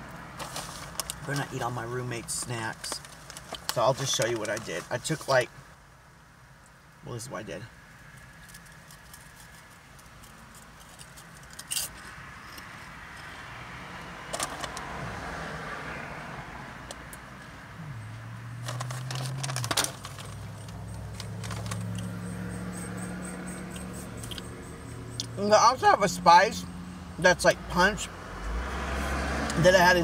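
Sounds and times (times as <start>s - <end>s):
chewing crunchy snacks: 8.4s - 13.3s, 18.6s - 22.1s
foil snack bag crinkling: 18.6s - 22.0s.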